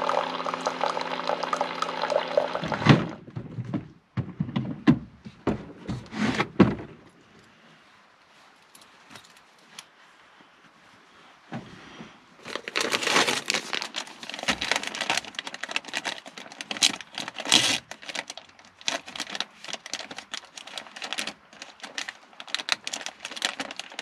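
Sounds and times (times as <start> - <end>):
clothing rustling and crinkling: 5.2 - 24.0.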